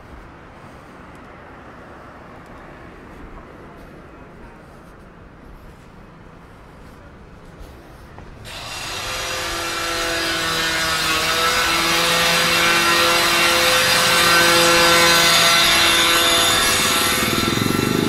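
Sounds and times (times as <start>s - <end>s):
power tool whining: 8.5s - 18.0s.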